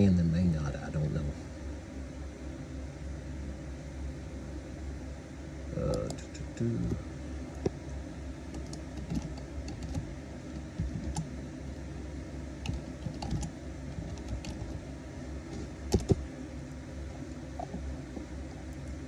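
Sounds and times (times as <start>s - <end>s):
low steady hum: 0.0s - 19.0s
computer keyboard typing: 8.6s - 10.0s, 12.7s - 14.7s, 15.9s - 16.2s.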